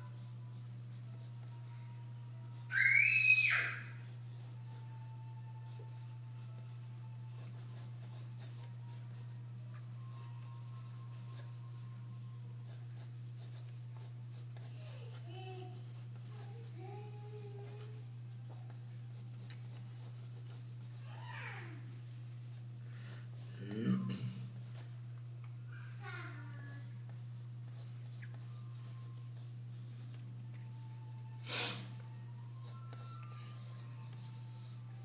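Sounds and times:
low electrical hum: 0.0s - 35.0s
pencil scratching on paper: 4.0s - 5.0s, 5.7s - 21.1s, 21.8s - 23.6s, 24.4s - 24.9s, 27.1s - 30.2s, 32.6s - 35.0s.

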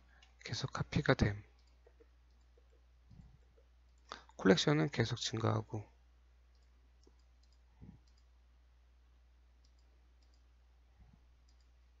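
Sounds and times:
low steady hum: 0.0s - 12.0s
computer mouse clicks: 1.5s - 4.4s, 6.5s - 8.3s, 9.6s - 10.5s, 11.4s - 11.8s.

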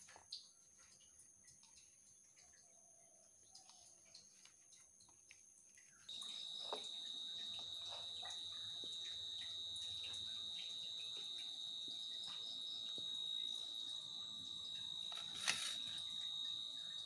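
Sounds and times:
steady high-pitched whine: 6.1s - 17.0s
plastic spoon stirring potatoes: 15.0s - 16.2s.

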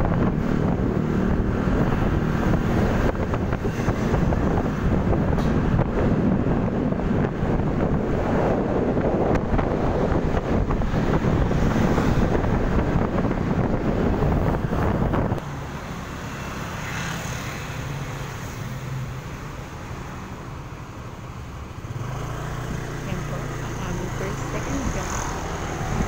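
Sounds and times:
wind buffeting microphone: 0.0s - 15.4s, 23.0s - 26.0s.

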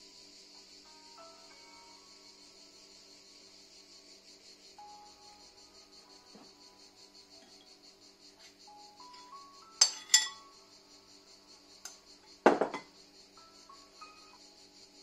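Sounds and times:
soft background music: 0.0s - 15.0s
metal spoon clinking on dish: 9.2s - 10.5s.

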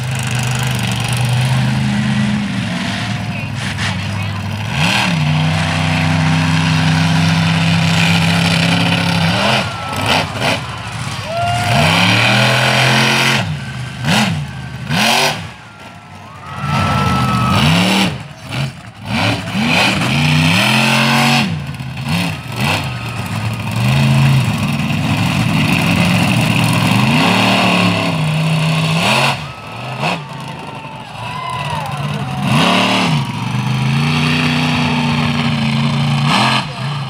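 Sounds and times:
truck engine revving: 0.0s - 37.0s.

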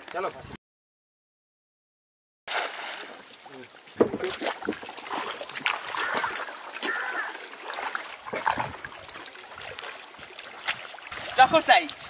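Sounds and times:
shallow water splashing and dripping: 2.5s - 12.0s.

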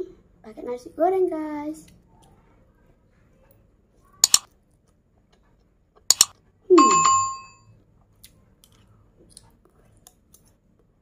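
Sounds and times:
double mouse click: 4.2s - 4.5s, 6.1s - 6.3s
bell ding: 6.8s - 7.6s.

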